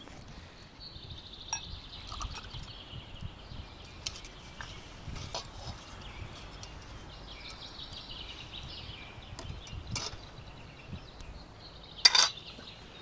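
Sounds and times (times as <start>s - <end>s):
birds chirping and singing: 0.0s - 13.0s
metal clinks of wire grill basket: 12.0s - 12.4s.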